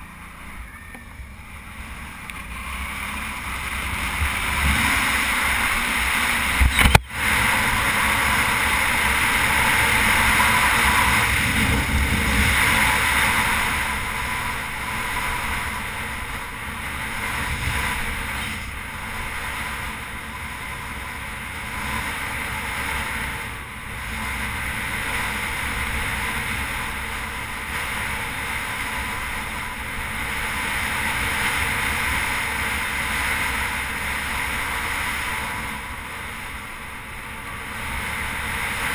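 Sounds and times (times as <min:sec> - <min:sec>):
motorcycle engine rumble: 0:00.0 - 0:38.9
wind rushing over microphone: 0:00.0 - 0:38.9
sharp click: 0:06.6 - 0:07.0.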